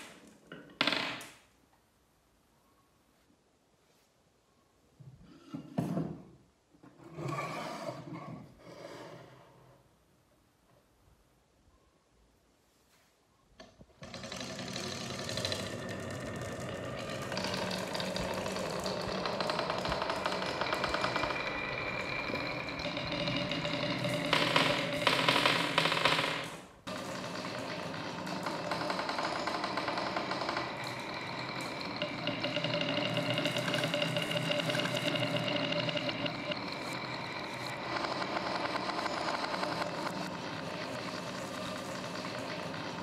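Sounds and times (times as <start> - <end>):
marbles rattling down wooden run: 14.0 - 43.0
ringing hum: 15.3 - 43.0.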